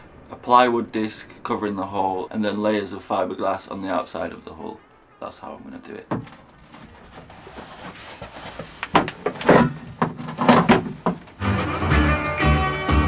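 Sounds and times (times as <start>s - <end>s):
palm sander scraping fiberglass: 6.5s - 11.2s
background music with steady beat: 11.4s - 13.0s.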